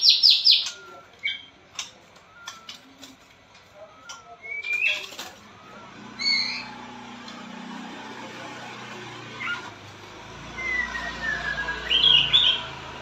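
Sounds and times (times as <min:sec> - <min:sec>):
songbird singing: 0:00.0 - 0:03.0, 0:10.6 - 0:12.8.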